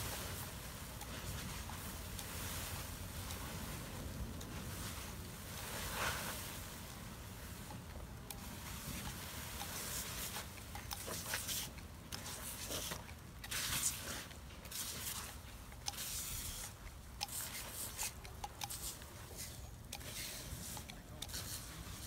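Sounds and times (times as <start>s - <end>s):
sprayer hissing bursts: 8.3s - 22.0s.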